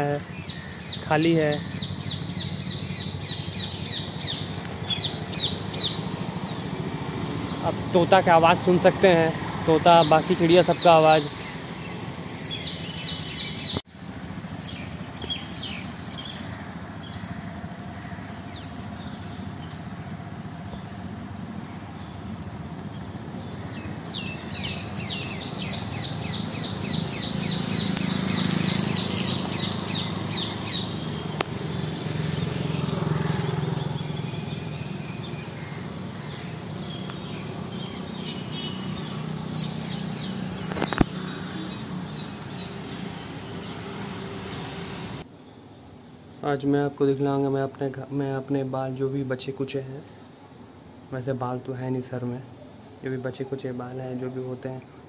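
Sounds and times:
parrots and birds calling: 0:00.0 - 0:07.8, 0:10.4 - 0:13.8, 0:14.4 - 0:20.0, 0:22.9 - 0:45.2.

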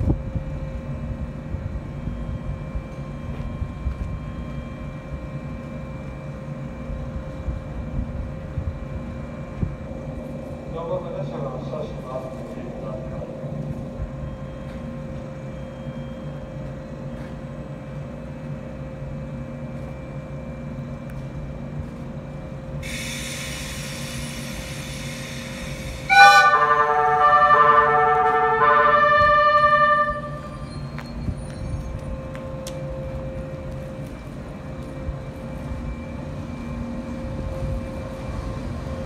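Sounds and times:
train approaching with low hum: 0:00.0 - 0:39.0
hiss: 0:22.8 - 0:26.2
train music horn melody: 0:26.0 - 0:30.9.

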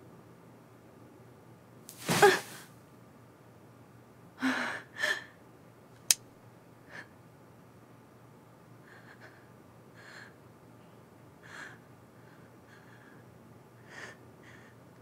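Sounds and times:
woman gasping: 0:02.0 - 0:02.6.

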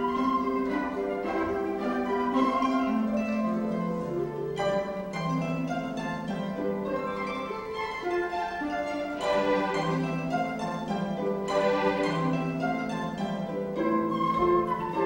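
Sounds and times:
flute solo: 0:00.0 - 0:04.1, 0:13.8 - 0:15.0
harp and plucked strings: 0:00.0 - 0:15.0
orchestral accompaniment: 0:00.0 - 0:15.0.

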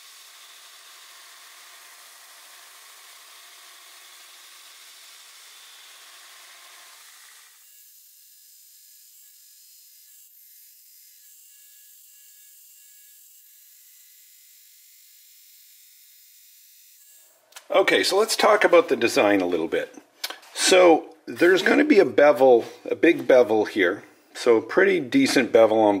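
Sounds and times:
belt grinder grinding knife blade: 0:00.0 - 0:17.4.

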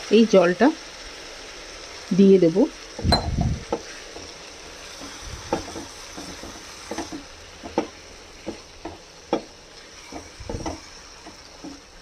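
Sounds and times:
gravy sizzling: 0:00.0 - 0:12.0
spatula scraping pan: 0:03.7 - 0:12.0.

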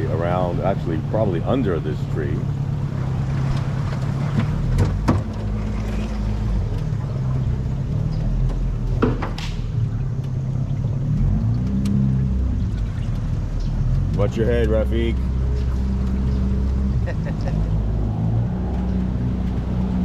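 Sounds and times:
outboard motor running: 0:00.0 - 0:20.0
knocks on boat: 0:03.9 - 0:05.5, 0:08.5 - 0:09.7.

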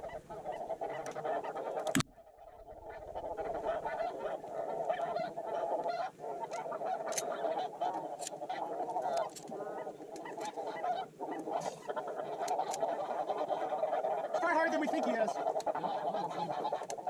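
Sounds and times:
geese honking: 0:00.0 - 0:17.0.

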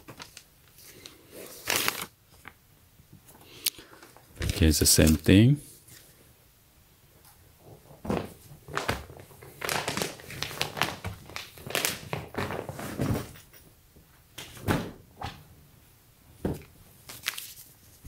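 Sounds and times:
bedding rustling: 0:07.6 - 0:13.6
plastic bag crinkling: 0:08.1 - 0:12.9.

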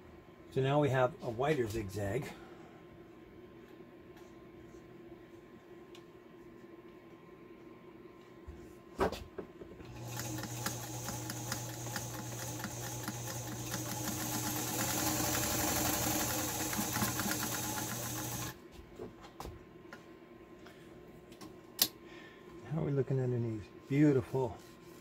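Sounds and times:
sewing machine running: 0:09.9 - 0:18.6.

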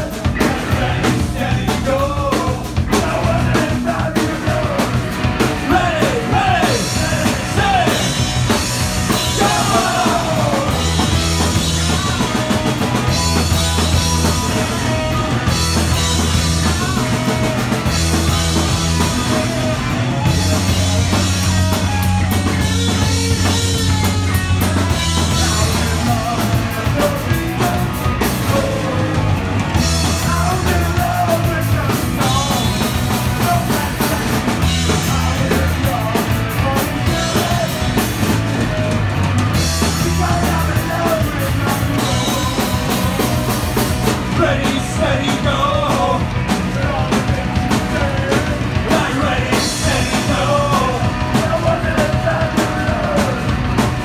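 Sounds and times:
bass guitar: 0:00.0 - 0:54.0
drum kit: 0:00.0 - 0:54.0
electric guitar: 0:00.0 - 0:54.0
person singing: 0:09.1 - 0:11.1, 0:30.0 - 0:38.1, 0:44.2 - 0:53.8.

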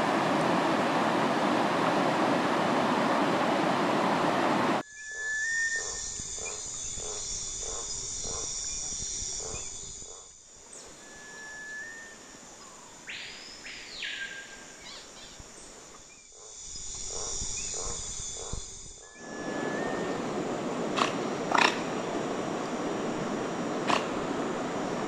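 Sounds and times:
high insect drone: 0:04.8 - 0:25.0
loud animal call: 0:21.0 - 0:21.9.

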